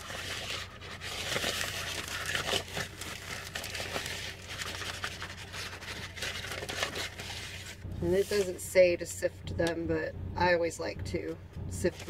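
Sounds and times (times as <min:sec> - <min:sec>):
plastic bag crinkling: 0:00.0 - 0:08.6.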